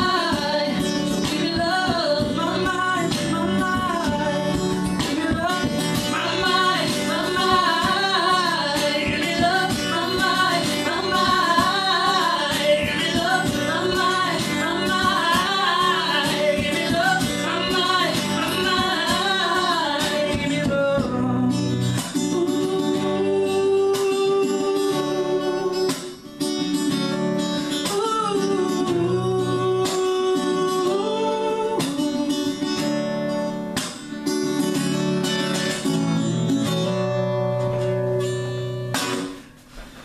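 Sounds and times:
woman singing: 0:00.0 - 0:26.6, 0:27.7 - 0:33.5
strummed acoustic guitar: 0:00.0 - 0:40.0
man singing: 0:01.3 - 0:26.2.

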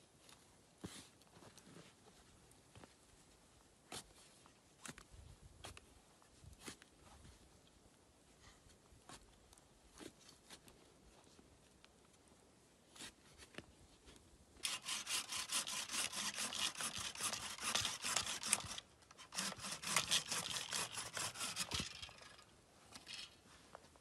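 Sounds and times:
hand saw cutting wood: 0:14.6 - 0:23.2.

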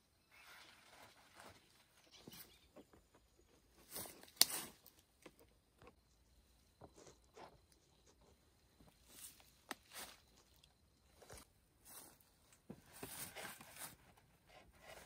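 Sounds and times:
twigs snapping: 0:04.2 - 0:05.4.

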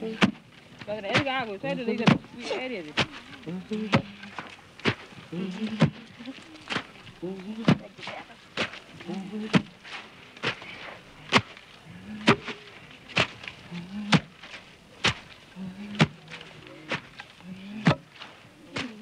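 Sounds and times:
onions being pounded: 0:00.0 - 0:06.0, 0:06.7 - 0:09.8, 0:12.1 - 0:12.6, 0:13.2 - 0:14.3, 0:15.0 - 0:16.3, 0:16.9 - 0:19.0.

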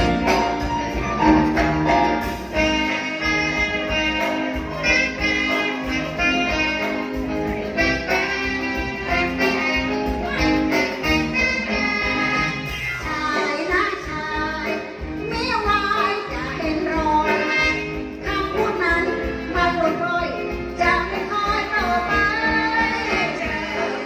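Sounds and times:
live band playing: 0:00.0 - 0:24.0
women singing: 0:11.6 - 0:24.0.

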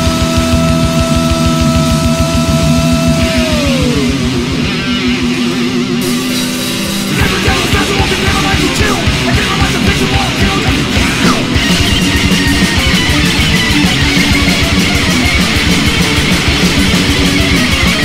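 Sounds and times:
distorted electric guitar riffing: 0:00.0 - 0:18.0
metal band drums: 0:00.0 - 0:18.0.

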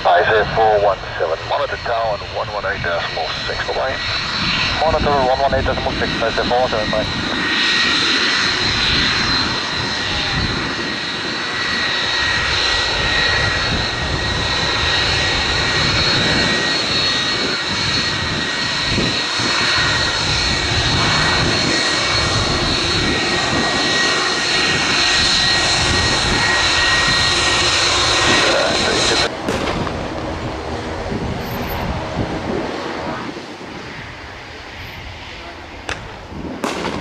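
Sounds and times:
constant rushing noise: 0:00.0 - 0:37.0
jet engine whine: 0:00.0 - 0:37.0.

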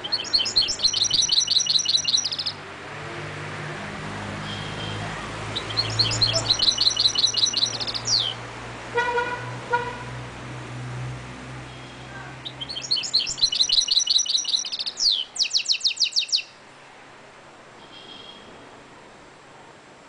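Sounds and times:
bird singing rapid high trills: 0:00.0 - 0:02.6, 0:04.5 - 0:08.4, 0:11.7 - 0:16.6
low traffic hum: 0:00.0 - 0:20.0
car horn: 0:08.9 - 0:10.2.

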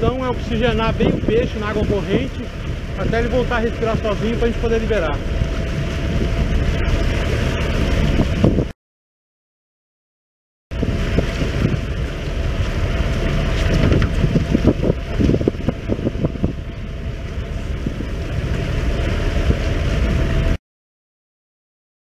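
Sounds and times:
boat engine running: 0:00.0 - 0:08.7, 0:10.7 - 0:20.6
water washing along hull: 0:00.0 - 0:08.7, 0:10.7 - 0:20.6
wind buffeting microphone: 0:00.0 - 0:08.8, 0:10.7 - 0:20.6.

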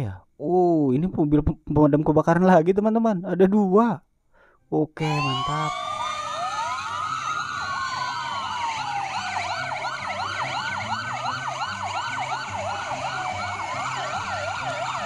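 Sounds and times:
fire engine sirens wailing: 0:05.0 - 0:15.0
siren fast yelp: 0:05.0 - 0:15.0.

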